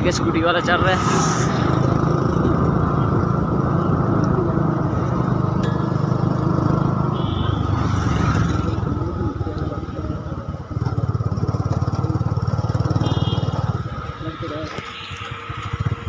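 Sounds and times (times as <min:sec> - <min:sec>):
wind rush: 0:00.0 - 0:05.6
road noise: 0:00.0 - 0:16.0
motorbike engine running: 0:01.9 - 0:16.0.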